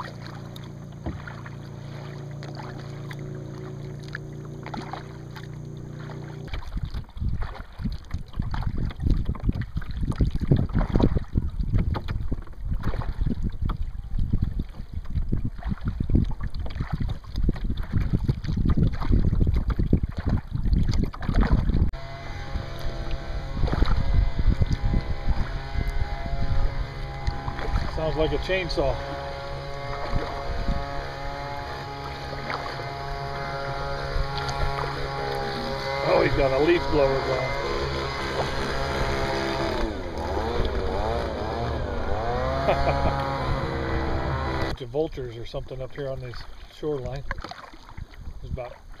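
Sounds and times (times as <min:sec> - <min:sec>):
distant leaf blower drone: 0:00.0 - 0:06.6, 0:22.0 - 0:44.8
wind buffeting microphone: 0:06.5 - 0:44.8.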